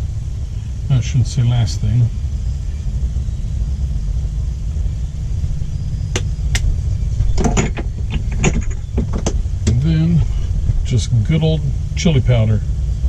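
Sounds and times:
machinery rumbling: 0:00.0 - 0:13.0.

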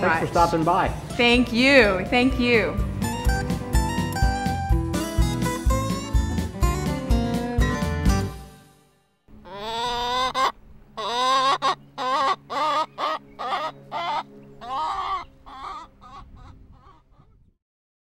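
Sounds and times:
hen cackling and clucking: 0:09.3 - 0:17.4.

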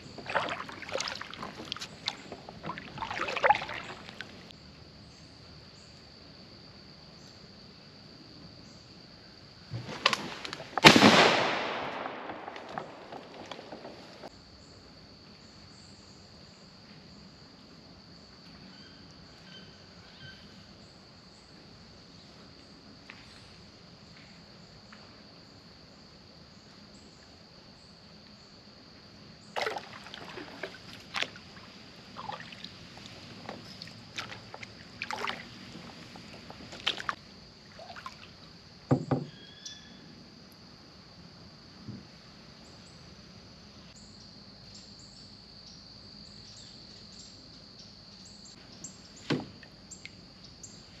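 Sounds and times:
water sloshing: 0:00.0 - 0:04.5, 0:12.3 - 0:14.3, 0:29.5 - 0:38.6
high insect drone: 0:11.7 - 0:51.0
hollow thump: 0:38.9 - 0:39.4, 0:49.2 - 0:49.6
paddle knocking on boat: 0:38.9 - 0:39.4.

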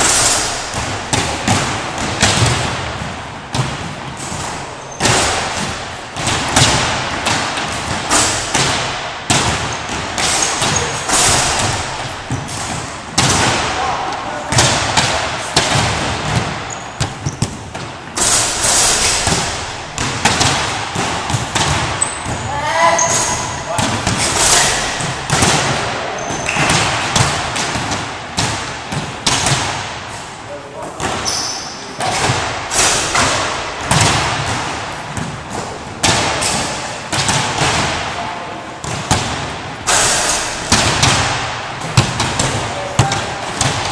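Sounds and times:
loud rushing noise: 0:00.0 - 0:16.6
basketballs bouncing on wooden floor: 0:00.0 - 0:43.9.

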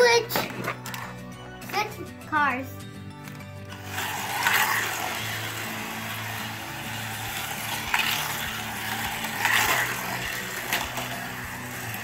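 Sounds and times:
slot car motor whirring: 0:03.7 - 0:12.0.

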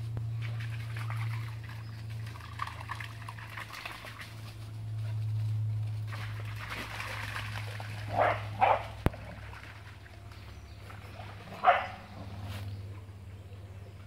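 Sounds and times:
dog barking: 0:08.1 - 0:08.9, 0:11.6 - 0:12.0.

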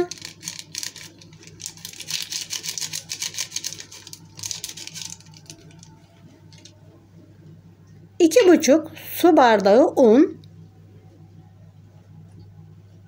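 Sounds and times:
paper sachet crinkling: 0:00.0 - 0:06.8.

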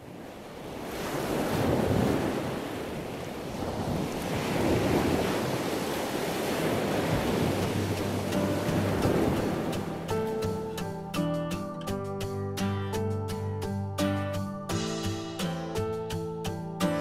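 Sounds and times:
ocean surf washing in: 0:00.0 - 0:11.8.

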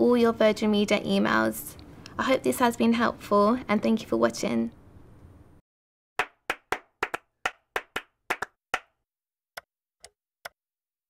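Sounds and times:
sharp handclaps: 0:06.2 - 0:08.9.

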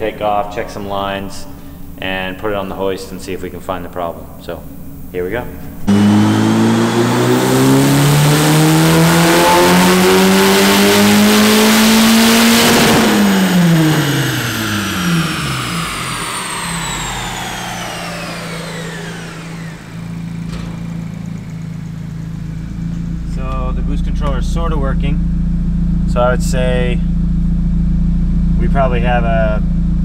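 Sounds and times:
car engine revving on a dyno: 0:05.8 - 0:24.2
turbo whine: 0:05.8 - 0:30.0.

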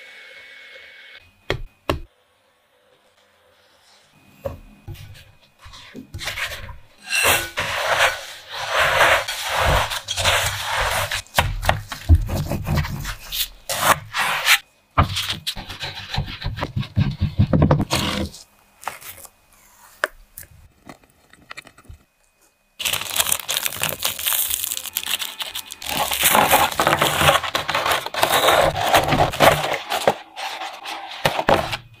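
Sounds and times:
rubbing handling sounds: 0:20.7 - 0:31.9.

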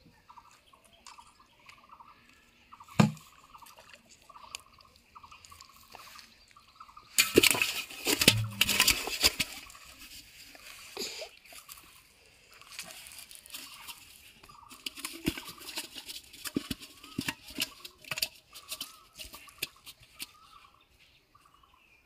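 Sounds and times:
birds chirping: 0:00.0 - 0:10.1, 0:11.0 - 0:22.0
metal pot knocking and rattling: 0:03.0 - 0:03.2, 0:07.2 - 0:10.1, 0:13.6 - 0:20.5.

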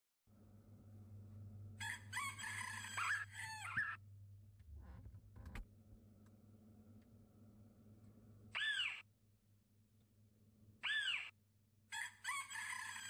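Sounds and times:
low steady hum: 0:00.3 - 0:02.4, 0:03.7 - 0:08.5
rooster crowing: 0:01.8 - 0:04.0, 0:11.9 - 0:13.0.

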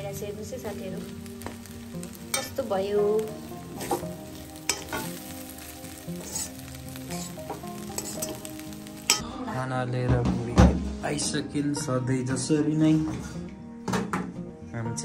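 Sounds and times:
rice sizzling in a pan: 0:00.0 - 0:09.3
spatula scraping a pan: 0:06.2 - 0:08.5.

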